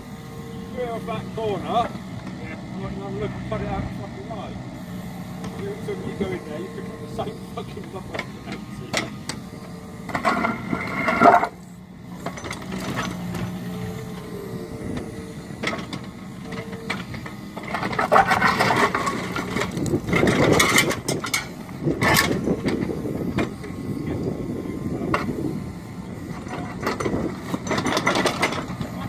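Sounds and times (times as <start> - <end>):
excavator engine humming: 0.0 - 29.0
hydraulic whine: 0.0 - 29.0
bucket scraping concrete rubble: 10.2 - 11.6.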